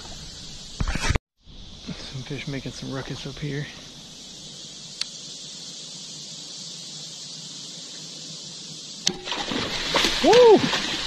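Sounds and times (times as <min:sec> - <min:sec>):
faint high hiss: 0:00.0 - 0:11.0
splashing in water: 0:09.1 - 0:11.0.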